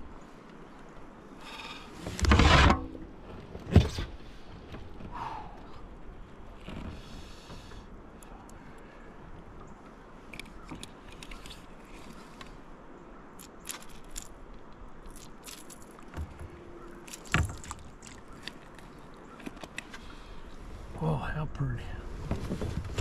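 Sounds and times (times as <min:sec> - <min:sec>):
clicks scrapes and rattles: 0:10.3 - 0:12.6.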